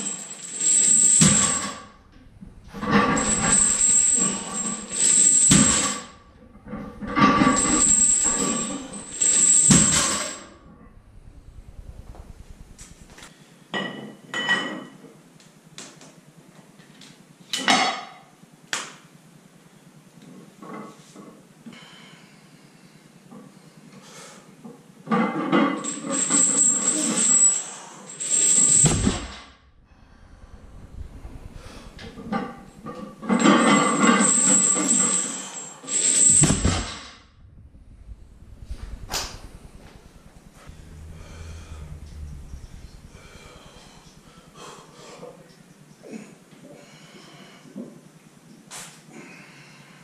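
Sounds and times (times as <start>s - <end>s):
weight plates clanking: 0.8s - 10.8s
rasping noise bursts: 28.8s - 33.2s, 36.2s - 44.9s.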